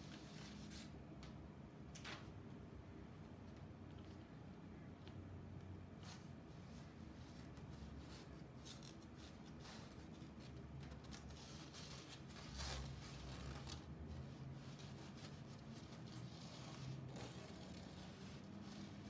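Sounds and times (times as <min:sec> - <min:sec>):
paper and wire rustling: 0:06.0 - 0:19.0.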